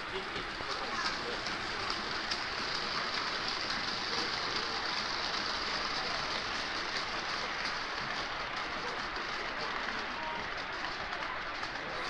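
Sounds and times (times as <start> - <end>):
model train wheels rolling on rails: 0.0 - 12.0.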